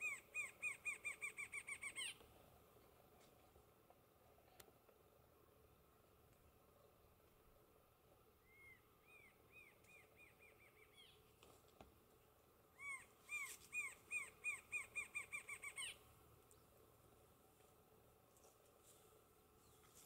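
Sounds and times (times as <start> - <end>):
bird singing repeated notes: 0.0 - 2.2, 12.8 - 16.0.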